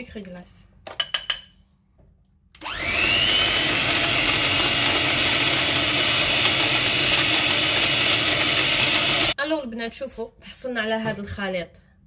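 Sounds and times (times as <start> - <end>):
electric hand mixer whining: 2.6 - 9.4.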